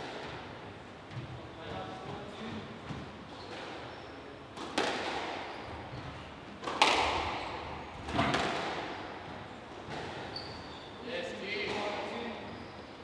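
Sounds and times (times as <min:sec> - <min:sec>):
squash ball cracking off walls: 0:04.6 - 0:05.4, 0:06.6 - 0:07.4, 0:08.0 - 0:08.9.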